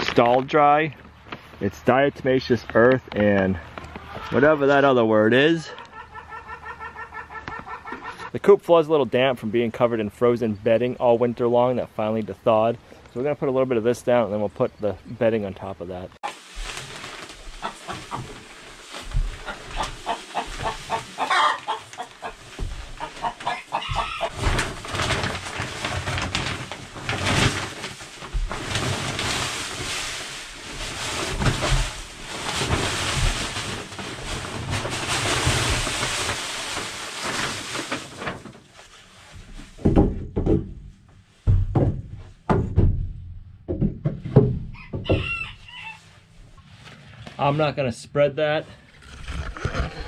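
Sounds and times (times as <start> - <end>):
hens clucking: 3.6 - 4.9, 5.5 - 8.4, 17.5 - 24.7
wood shavings pouring rustle: 16.2 - 39.5
sharp knocks: 39.8 - 45.3.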